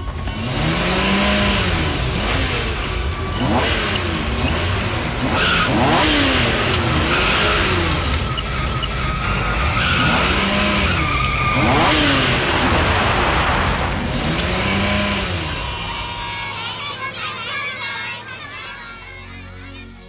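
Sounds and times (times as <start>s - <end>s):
sports car engine revving: 0.0s - 16.6s
tyres spinning and squealing: 0.0s - 20.0s.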